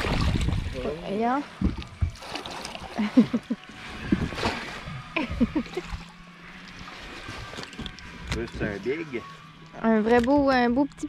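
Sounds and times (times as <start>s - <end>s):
water splashing: 0.0s - 11.0s.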